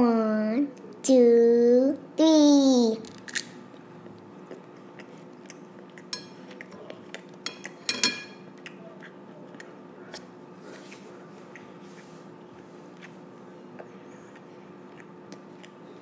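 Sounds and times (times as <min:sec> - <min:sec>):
faint steady hum: 0:00.0 - 0:16.0
girl chewing food: 0:03.8 - 0:16.0.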